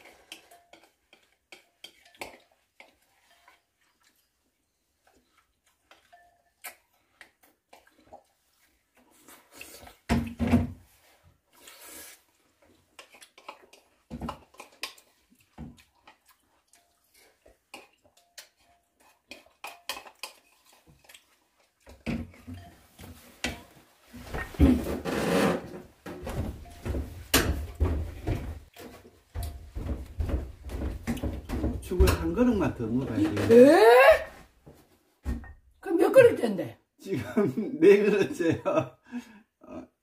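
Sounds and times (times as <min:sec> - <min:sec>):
spoons clinking against wooden bowls: 0:00.0 - 0:04.4, 0:05.1 - 0:07.2, 0:16.1 - 0:21.2.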